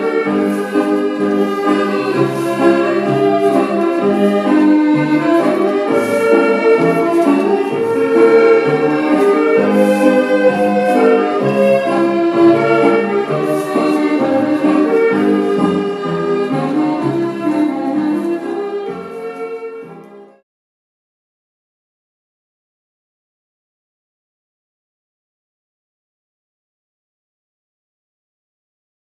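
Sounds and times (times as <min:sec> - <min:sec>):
country dance music ensemble: 0:00.0 - 0:20.4.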